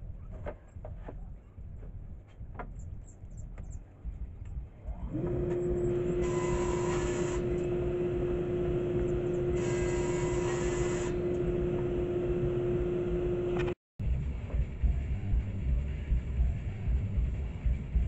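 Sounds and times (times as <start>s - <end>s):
table saw whining: 5.0s - 13.8s
saw blade cutting wood: 5.1s - 13.8s.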